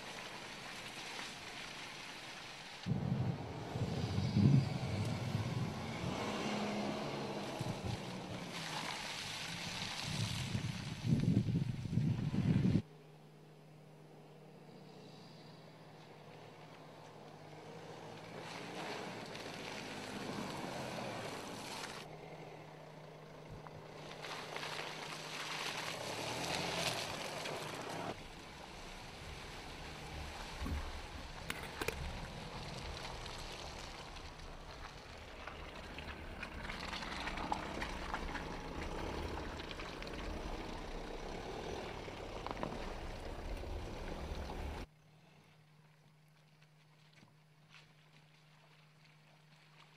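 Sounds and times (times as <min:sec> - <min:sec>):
tyres rumbling through mud: 0:00.0 - 0:12.8, 0:16.1 - 0:44.9
car engine running: 0:12.1 - 0:44.9.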